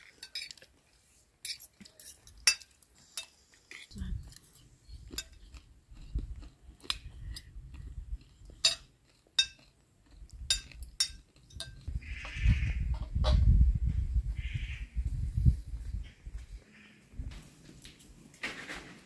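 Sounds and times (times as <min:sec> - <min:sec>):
spoons clinking on glass plates: 0:00.0 - 0:00.6, 0:01.4 - 0:03.4, 0:08.6 - 0:09.7, 0:10.5 - 0:11.9.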